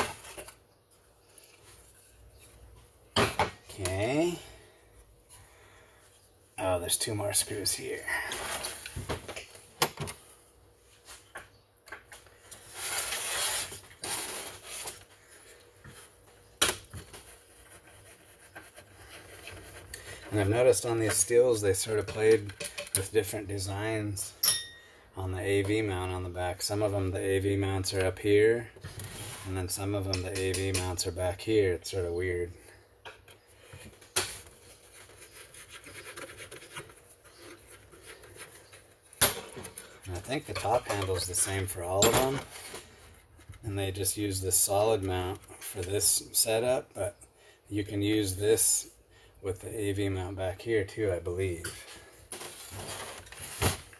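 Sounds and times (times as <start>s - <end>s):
screwdriver scraping and rubbing: 34.7s - 38.9s.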